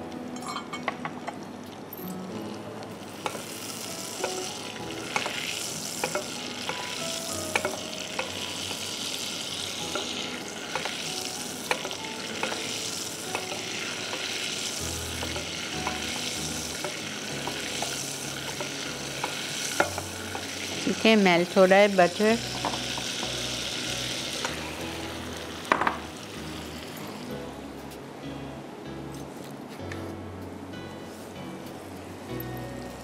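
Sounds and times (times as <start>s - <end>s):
butter sizzling in pan: 2.9s - 27.4s
spoon clicking against pan: 7.5s - 8.8s.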